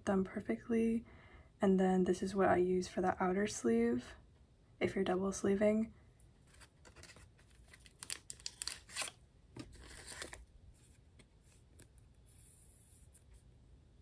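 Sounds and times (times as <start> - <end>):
plastic sleeves crinkling: 6.4 - 12.1.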